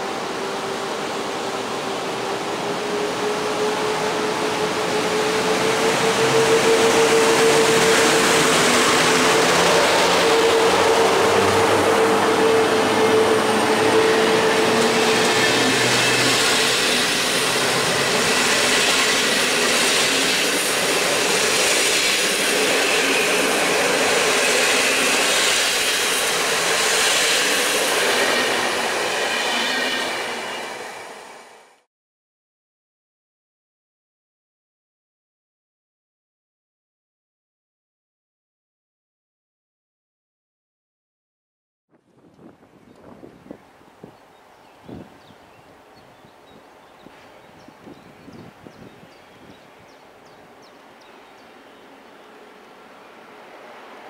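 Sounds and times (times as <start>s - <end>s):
electric locomotive hum: 0.0s - 31.8s
train wheels clattering on rails: 6.1s - 30.8s.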